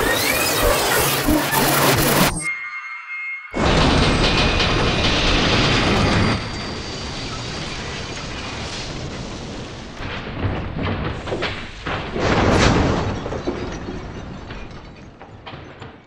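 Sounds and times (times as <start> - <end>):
rolling train: 2.6 - 16.0
clattering knocks: 3.6 - 16.0
loud booming crash: 3.6 - 16.0
metal clanking impacts: 3.6 - 16.0.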